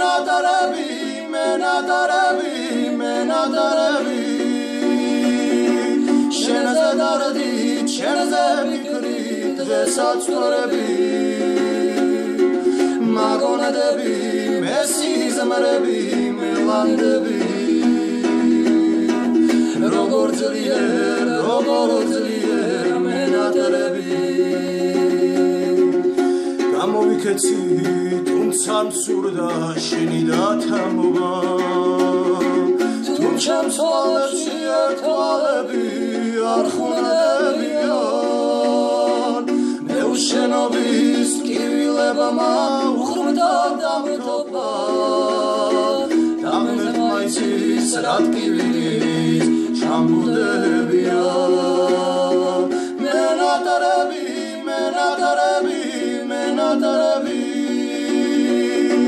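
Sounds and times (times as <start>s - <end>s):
strummed string instrument: 0.0s - 59.0s
two men singing: 0.0s - 59.0s.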